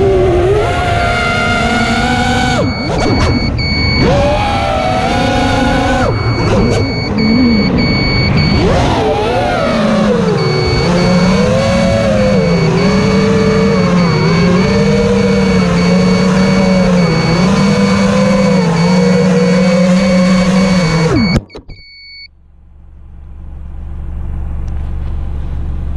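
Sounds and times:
drone motors buzzing: 0:00.0 - 0:21.7
low rumble: 0:06.0 - 0:08.7.

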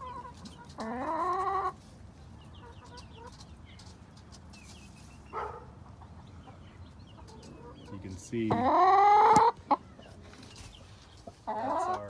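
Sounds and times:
chicks peeping: 0:00.0 - 0:12.0
hen calling: 0:06.5 - 0:10.2, 0:10.8 - 0:12.0.

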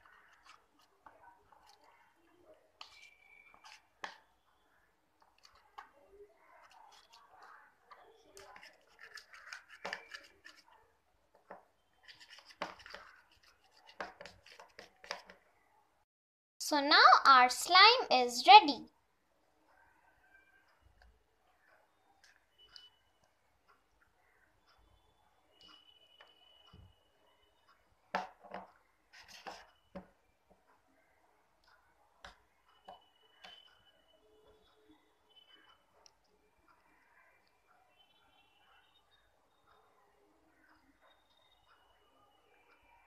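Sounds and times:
spoon scraping plastic bowl: 0:00.0 - 0:01.9, 0:02.8 - 0:04.3, 0:06.6 - 0:07.4, 0:08.2 - 0:10.8, 0:12.0 - 0:15.4, 0:29.2 - 0:29.9.

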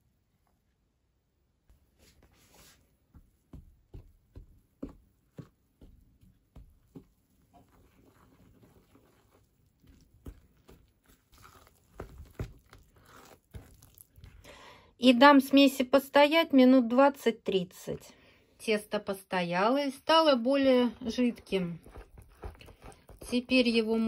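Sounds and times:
spoon scraping batter in bowl: 0:07.4 - 0:14.4, 0:21.1 - 0:23.8.

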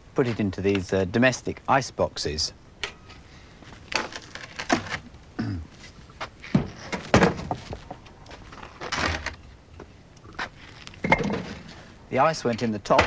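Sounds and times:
wooden knocks and thuds: 0:06.2 - 0:08.1.

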